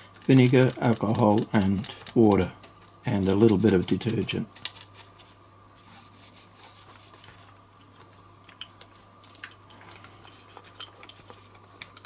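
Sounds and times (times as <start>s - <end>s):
rubbing and scrubbing: 0.0s - 7.6s.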